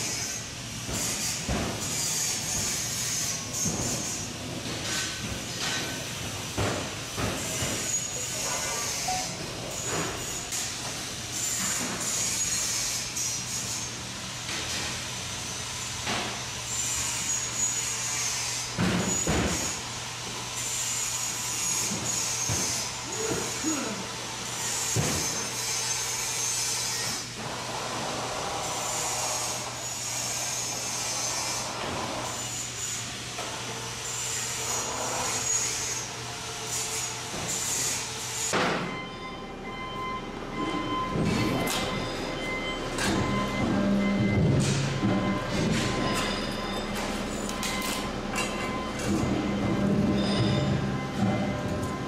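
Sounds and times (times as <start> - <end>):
steady machine hum: 38.0 - 52.0
steady higher tones: 38.9 - 52.0.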